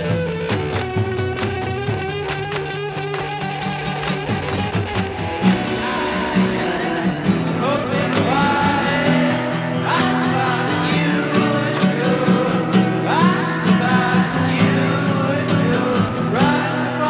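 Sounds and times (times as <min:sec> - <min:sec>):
guitar: 0:00.0 - 0:17.0
steady beat: 0:00.2 - 0:17.0
person singing: 0:05.2 - 0:17.0.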